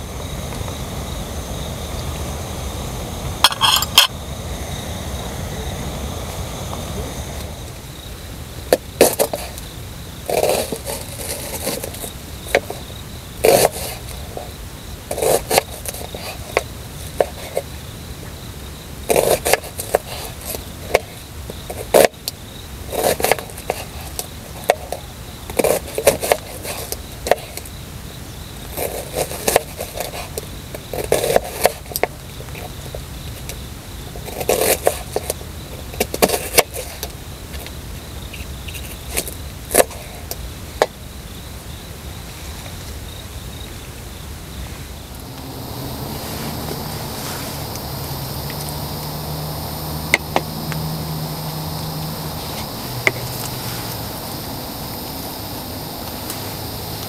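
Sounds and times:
high insect hum: 0:00.0 - 0:57.0
scraping and knocking: 0:03.4 - 0:04.1.

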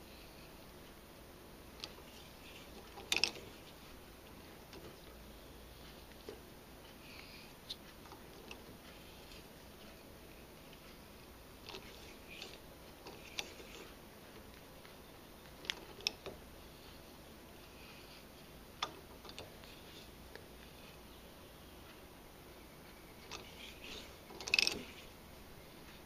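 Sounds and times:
sharp clicks and creaks: 0:01.8 - 0:05.2, 0:05.8 - 0:16.5, 0:18.8 - 0:21.2, 0:22.9 - 0:25.2.

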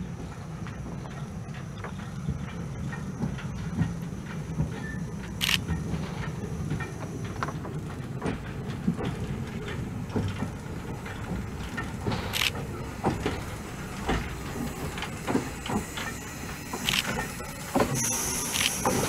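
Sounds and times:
steam locomotive rumbling: 0:00.0 - 0:19.0
wheels clanking on track: 0:00.0 - 0:19.0
high steam hiss: 0:09.9 - 0:19.0.

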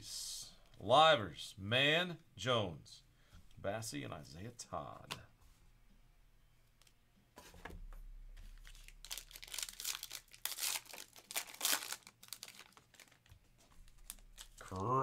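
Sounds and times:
foil wrapper tearing and crinkling: 0:08.6 - 0:14.9.

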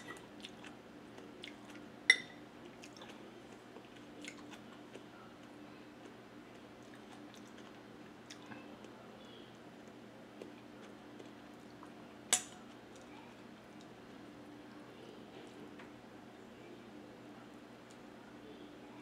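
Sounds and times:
person chewing: 0:00.1 - 0:08.5
metal spoon clinking glass bowl: 0:02.1 - 0:02.4.

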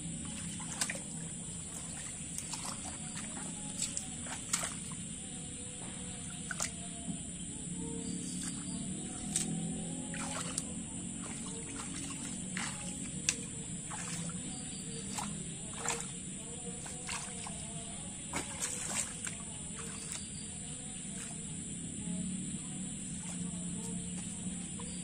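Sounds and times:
hands sloshing in muddy water: 0:00.0 - 0:07.0, 0:08.0 - 0:25.0
sharp splashes: 0:00.2 - 0:05.2, 0:06.1 - 0:06.8, 0:08.2 - 0:21.5.

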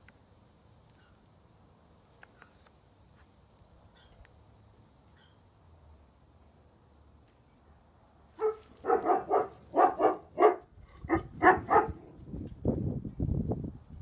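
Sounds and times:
dog barking: 0:08.4 - 0:12.1.

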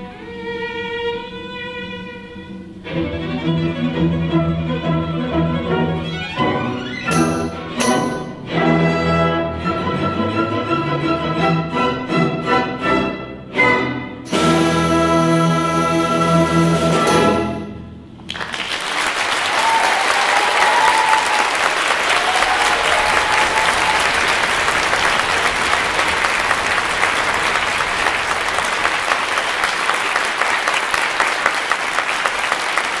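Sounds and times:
audience applause: 0:18.3 - 0:33.0.

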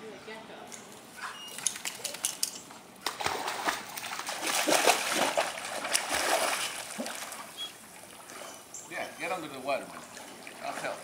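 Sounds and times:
dogs splashing in pool water: 0:01.3 - 0:11.0.

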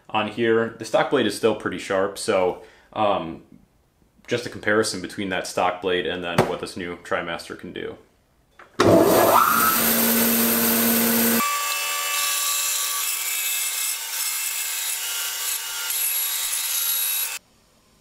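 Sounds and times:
bandsaw cutting wood: 0:08.8 - 0:17.4.

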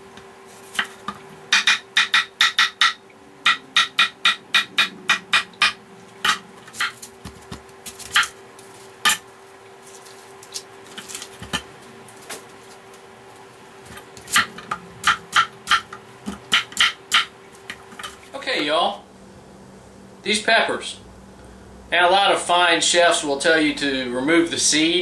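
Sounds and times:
knife chopping on wooden board: 0:00.7 - 0:08.4, 0:13.9 - 0:17.3.

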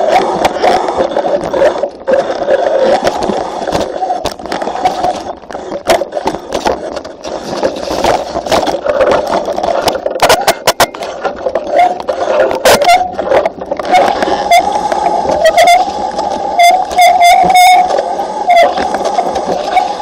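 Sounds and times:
bike tyres rattling on dirt trail: 0:00.0 - 0:20.0.

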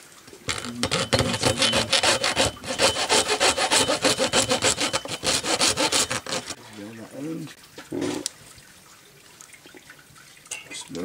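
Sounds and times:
hacksaw sawing through bone: 0:00.5 - 0:06.6.

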